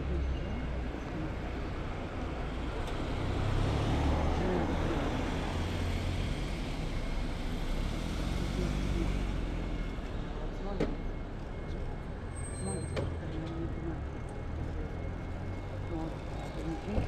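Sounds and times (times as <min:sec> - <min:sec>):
vehicle passing by: 0:03.0 - 0:06.8.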